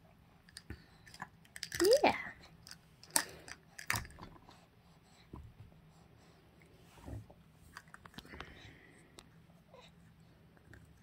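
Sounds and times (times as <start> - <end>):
plastic toy clicks: 1.5 - 2.0.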